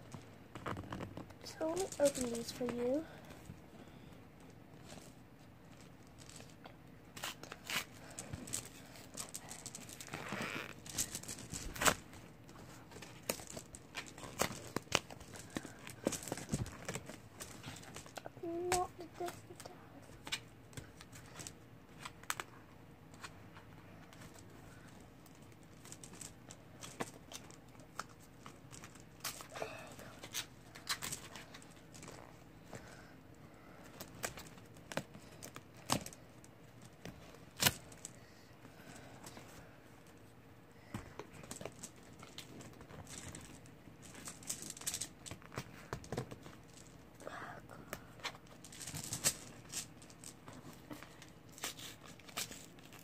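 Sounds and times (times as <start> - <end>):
packaging crinkling: 7.2 - 18.2.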